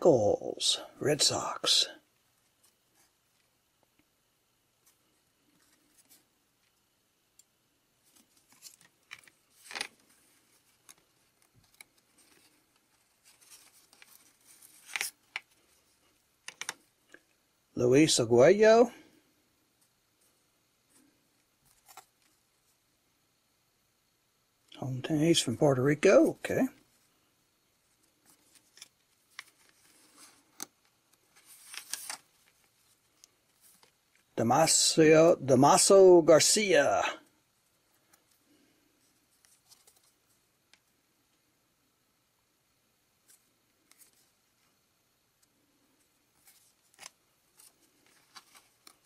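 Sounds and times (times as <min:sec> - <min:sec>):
cards shuffling and rustling: 0:04.8 - 0:06.8, 0:08.0 - 0:17.3, 0:19.8 - 0:22.4, 0:27.9 - 0:34.3, 0:38.0 - 0:40.8, 0:43.2 - 0:44.8, 0:45.4 - 0:49.0.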